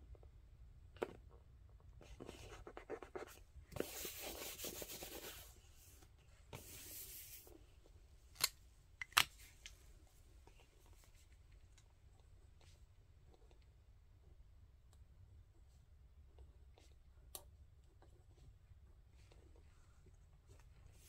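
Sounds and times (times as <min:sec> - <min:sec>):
soft swishing over paper: 0:02.0 - 0:07.8, 0:18.2 - 0:21.0
fingers scratching on paper: 0:02.3 - 0:05.5.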